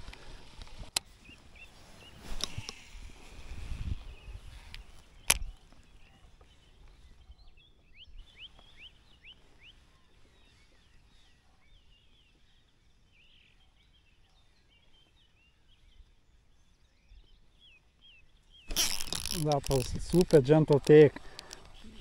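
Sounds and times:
small birds chirping: 0.0s - 22.0s
sharp click: 4.7s - 5.6s, 18.7s - 21.8s.

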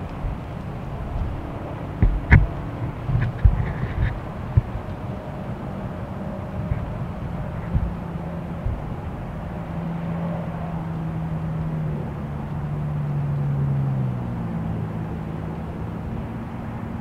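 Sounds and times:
distant engine drone: 0.0s - 17.0s.

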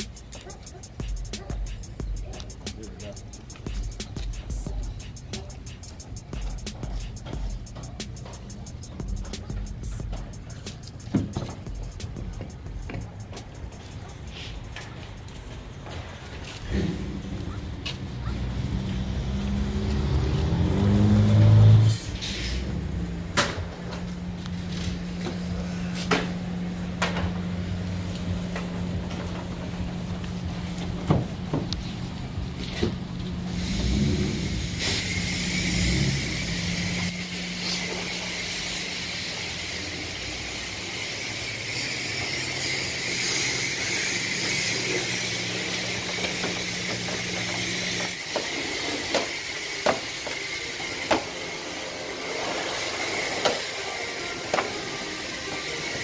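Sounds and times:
hose spraying with hiss: 0.0s - 17.2s, 27.8s - 56.0s
continuous low hum: 0.0s - 18.3s.

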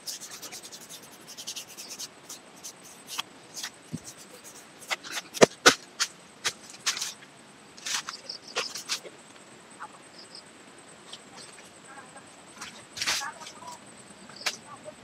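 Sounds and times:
hand tool scratching bark: 0.0s - 7.2s, 7.8s - 9.1s.

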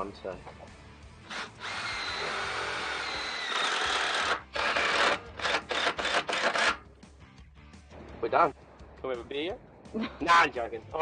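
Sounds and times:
power drill whirring: 1.2s - 6.8s.

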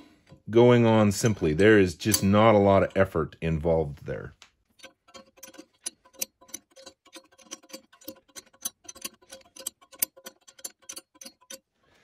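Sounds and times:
wrench clicking: 4.8s - 11.7s.

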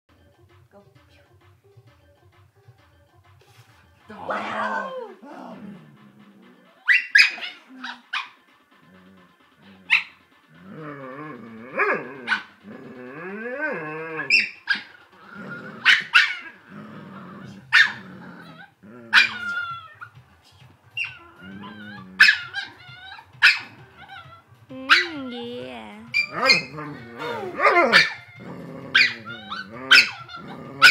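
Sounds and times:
dog barking: 6.8s - 8.4s, 9.9s - 10.2s, 12.3s - 12.5s, 15.8s - 16.5s, 17.7s - 18.0s, 19.1s - 19.6s, 22.2s - 22.8s, 23.4s - 23.7s, 26.1s - 26.8s, 27.6s - 28.2s, 28.9s - 29.2s, 29.9s - 30.9s.

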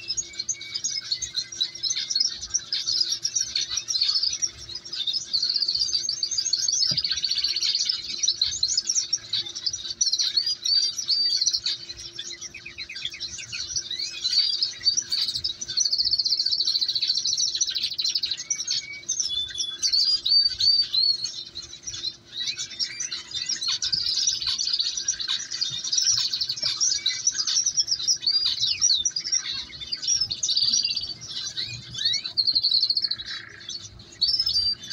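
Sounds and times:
canaries chirping and trilling: 0.0s - 34.9s.

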